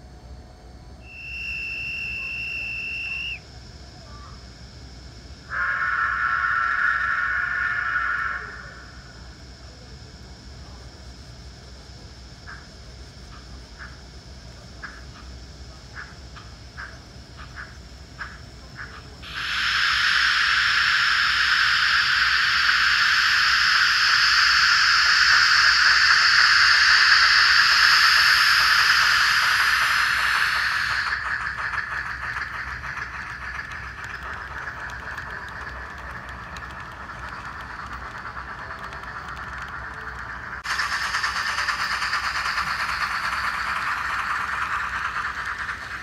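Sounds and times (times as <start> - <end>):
steam locomotive exhaust chuffs: 1.0 - 46.0
steam hiss: 5.5 - 9.1, 18.2 - 46.0.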